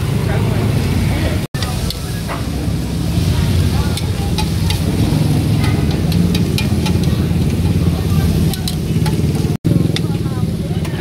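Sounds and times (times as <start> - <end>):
traffic engine rumble: 0.0 - 11.0
metal spoon scraping iron plates: 3.9 - 9.4.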